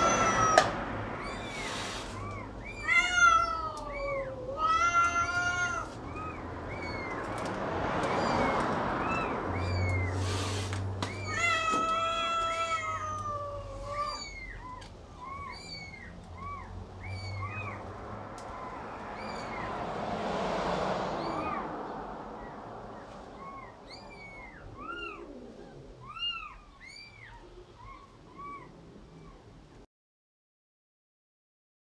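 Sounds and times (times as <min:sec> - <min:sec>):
kittens mewing: 0:00.0 - 0:20.0, 0:21.0 - 0:29.6
rushing hiss: 0:01.4 - 0:02.3, 0:10.1 - 0:10.9.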